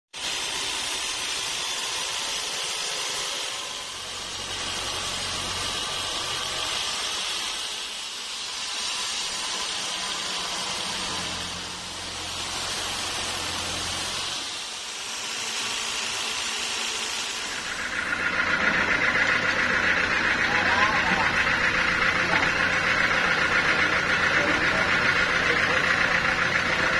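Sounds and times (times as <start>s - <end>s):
band saw blade cutting log: 0.2s - 26.9s
low motor hum: 3.6s - 15.3s, 17.2s - 26.9s.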